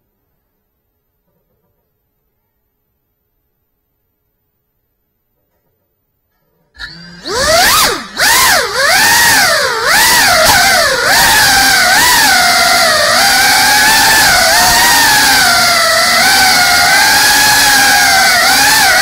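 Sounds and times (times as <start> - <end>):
drone motors whining: 6.8 - 19.0.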